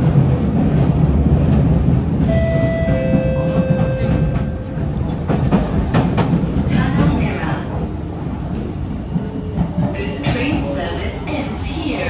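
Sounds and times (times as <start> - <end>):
train rumbling inside carriage: 0.0 - 12.0.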